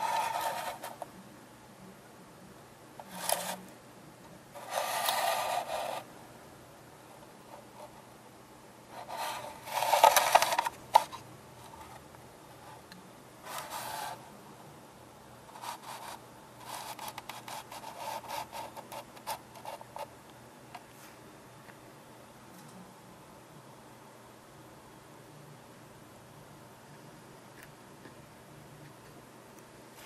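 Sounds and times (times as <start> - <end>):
quick scratches: 0.0 - 1.1, 3.0 - 3.6, 4.6 - 6.1, 9.0 - 12.0, 13.5 - 14.2, 15.5 - 20.1
rubbing and scraping: 0.0 - 1.1, 3.0 - 3.6, 4.6 - 6.1, 8.9 - 12.0, 13.5 - 14.2, 15.5 - 20.1.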